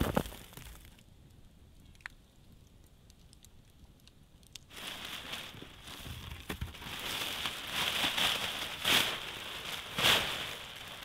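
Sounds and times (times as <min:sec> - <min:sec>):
plastic sheet crinkling: 0:04.7 - 0:11.0.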